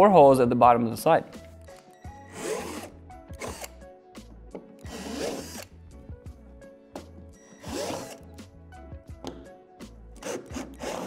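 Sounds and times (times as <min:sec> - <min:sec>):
power drill boring into plastic: 0:02.3 - 0:03.8, 0:04.9 - 0:05.7, 0:07.6 - 0:08.2, 0:10.2 - 0:11.0.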